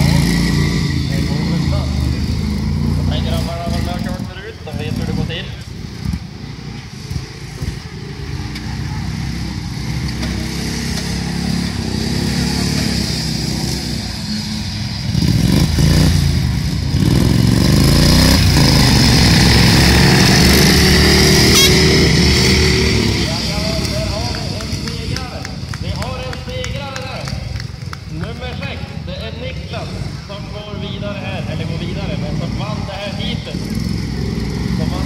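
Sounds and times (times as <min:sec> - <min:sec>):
lawn mower engine running hard: 0:00.0 - 0:25.8.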